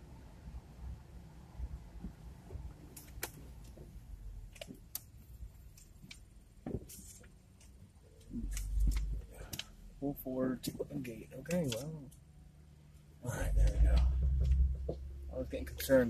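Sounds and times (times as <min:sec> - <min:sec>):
low rumble in car cabin: 0:08.2 - 0:16.0.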